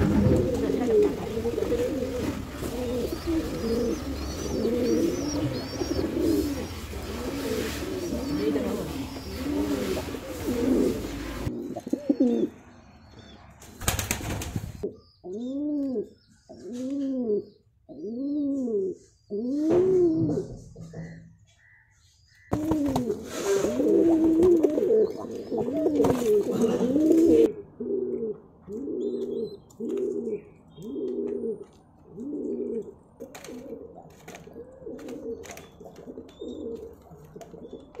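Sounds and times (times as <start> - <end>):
rustling: 0.0 - 11.5
pigeon cooing: 0.0 - 12.6, 22.5 - 38.0.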